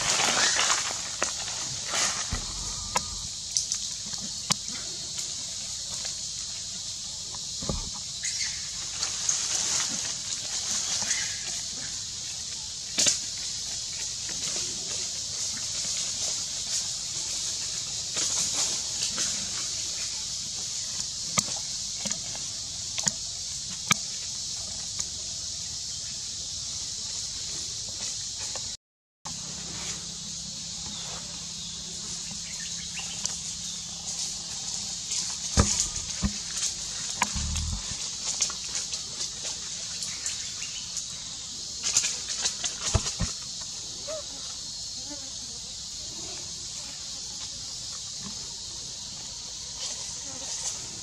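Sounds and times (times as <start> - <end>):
dry leaves crackling: 0.0 - 3.4, 8.2 - 11.8, 31.9 - 40.7
high-pitched insect drone: 0.0 - 9.9, 29.3 - 39.3
high-pitched insect chorus: 0.0 - 51.0
low thumps: 2.3 - 3.4, 35.6 - 36.5, 37.2 - 38.0.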